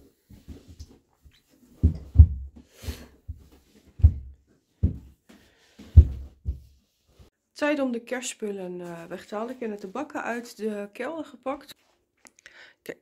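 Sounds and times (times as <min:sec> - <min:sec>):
footsteps on carpeted stairs: 0:00.0 - 0:07.3.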